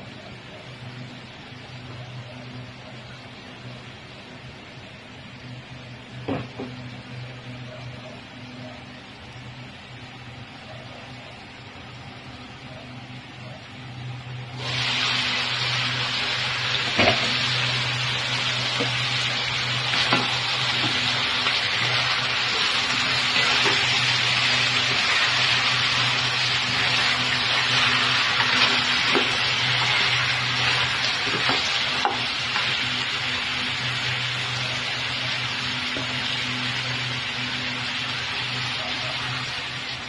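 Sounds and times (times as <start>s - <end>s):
steady low hum: 0.0s - 40.0s
food sizzling in a pot: 14.5s - 40.0s.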